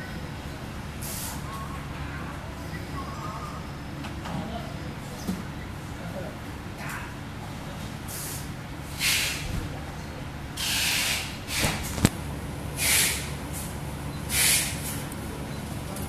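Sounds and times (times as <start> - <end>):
short bursts of hiss: 1.0 - 1.4, 8.1 - 9.4, 10.6 - 11.8, 12.8 - 13.3, 14.3 - 14.9.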